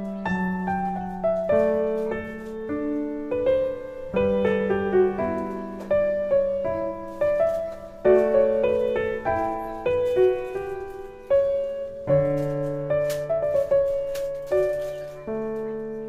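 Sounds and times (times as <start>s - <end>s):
slow solo piano: 0.0s - 16.0s.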